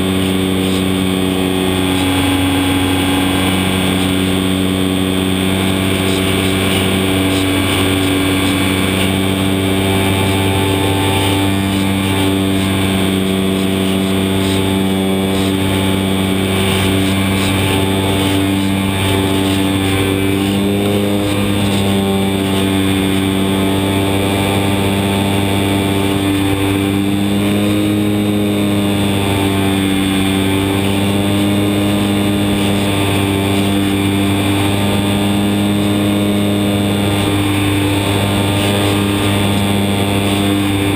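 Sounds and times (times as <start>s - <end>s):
model airplane motor whine: 0.0s - 40.9s
rushing air hiss: 5.4s - 23.7s.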